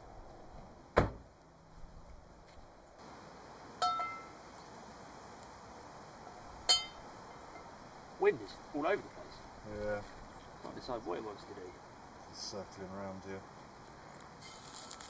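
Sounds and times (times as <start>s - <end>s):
truck door shutting: 1.0s - 1.3s.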